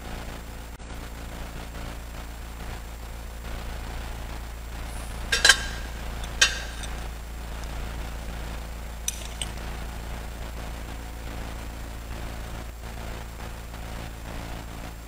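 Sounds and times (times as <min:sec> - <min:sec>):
steady low hum: 0:02.7 - 0:13.0
metallic clinks of lid and chains: 0:04.9 - 0:07.8, 0:09.1 - 0:09.6.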